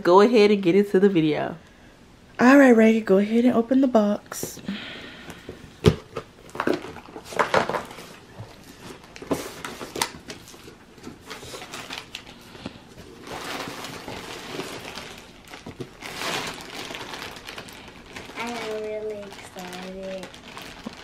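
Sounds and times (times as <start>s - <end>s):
plastic bag crinkling: 6.4s - 21.0s.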